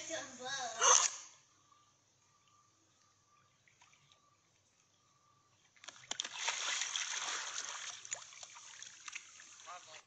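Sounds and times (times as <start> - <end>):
dog splashing in water: 5.8 - 9.4
big splash: 6.2 - 8.2.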